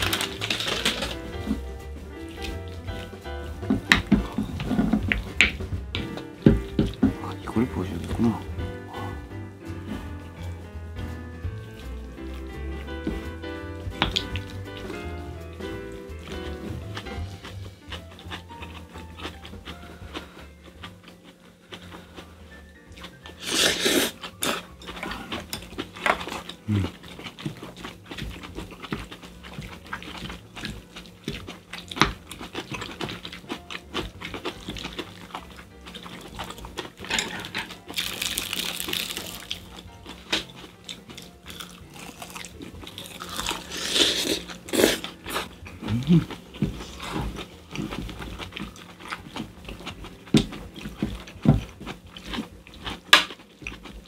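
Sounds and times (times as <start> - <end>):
chewing and slurping: 0.0 - 54.0
spoons and chopsticks clinking on bowls: 32.4 - 41.4.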